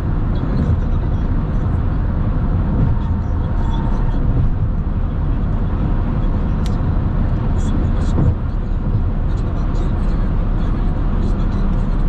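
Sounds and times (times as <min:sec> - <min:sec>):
tyre and wind noise: 0:00.0 - 0:09.2.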